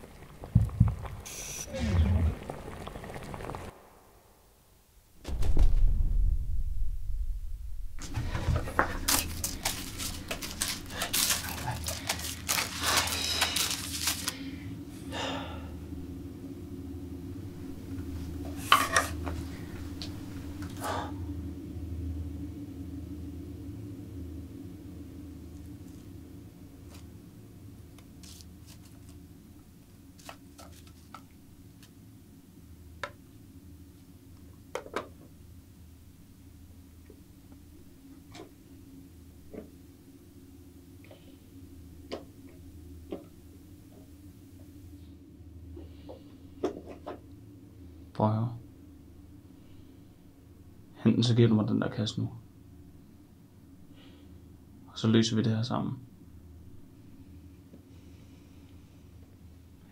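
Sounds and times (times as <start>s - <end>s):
steady low hum: 0.0s - 59.9s
wrappers rustling and crinkling: 8.0s - 14.6s, 28.2s - 29.2s, 30.1s - 31.2s.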